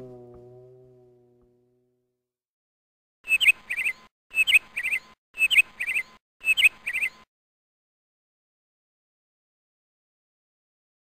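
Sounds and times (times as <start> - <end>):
canary chirping: 3.3 - 7.2.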